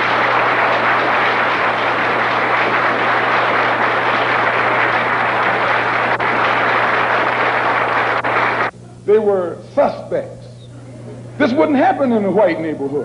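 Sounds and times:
audience applauding: 0.0s - 8.7s
steady low hum: 0.0s - 13.0s.

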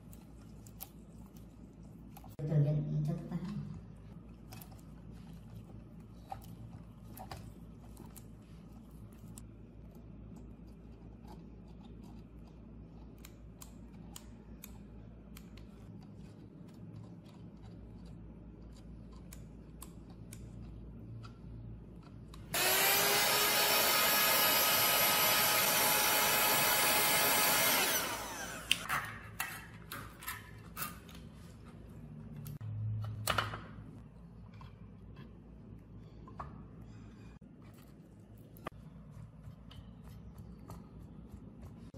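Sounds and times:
electric blower motor hum: 22.5s - 28.9s.

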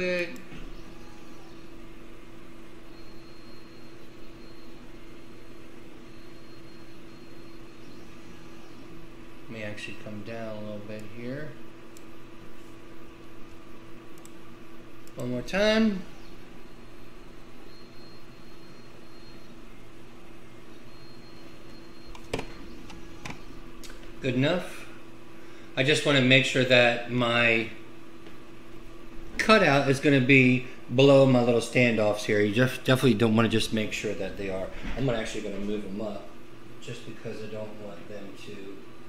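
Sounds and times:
laser engraver humming: 0.0s - 39.0s
sharp clicks: 13.4s - 14.4s, 15.0s - 15.3s.

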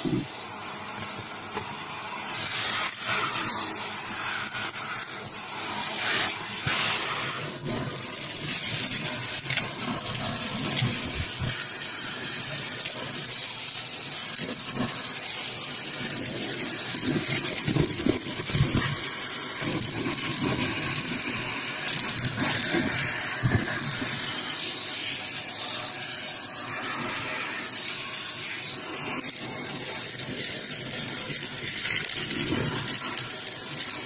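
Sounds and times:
vacuum cleaner running: 0.0s - 34.0s.

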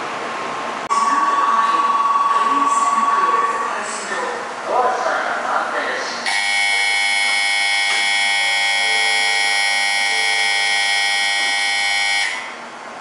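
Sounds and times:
electronic departure buzzer ringing: 6.3s - 12.6s.

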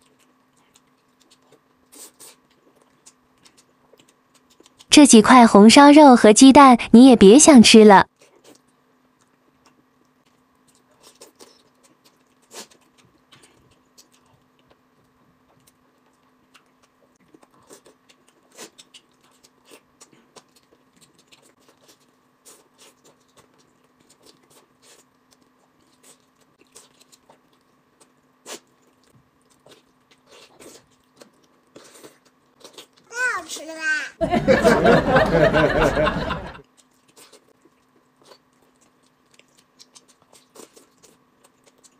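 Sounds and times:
chewing meat off the bone: 0.0s - 4.9s, 8.1s - 33.5s, 36.6s - 41.9s
faint steady hum: 34.2s - 41.9s.

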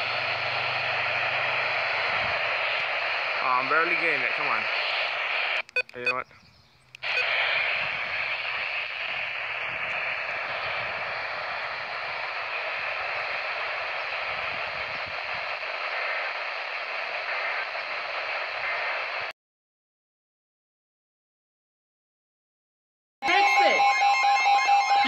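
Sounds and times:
radio static hiss: 0.0s - 6.3s, 7.0s - 19.3s.

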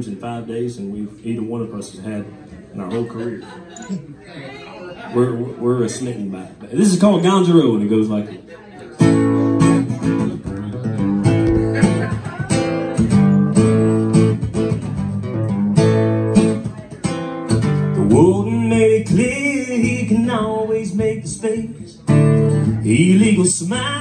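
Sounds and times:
acoustic guitar strumming: 9.0s - 24.0s.

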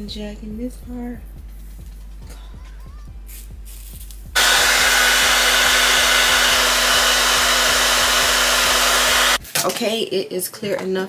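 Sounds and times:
hair dryer blowing: 4.4s - 9.4s.

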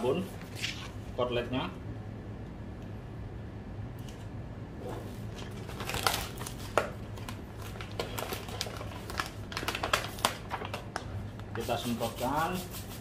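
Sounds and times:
vinyl film crinkling and rustling: 4.8s - 12.0s.

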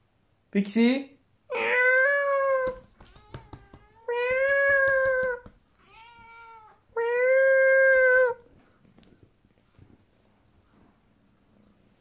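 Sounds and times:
cat meowing: 1.5s - 8.4s
soft taps: 2.6s - 5.6s.

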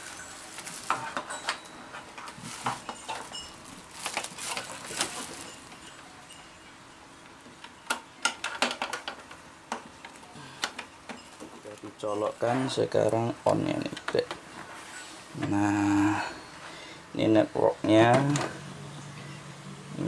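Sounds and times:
plastic bag crinkling: 0.0s - 6.0s.

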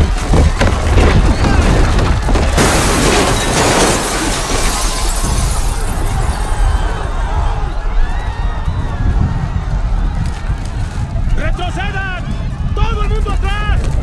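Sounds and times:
debris raining down: 0.0s - 7.3s
deep rumbling: 0.0s - 14.0s
glass shattering: 2.5s - 6.8s.

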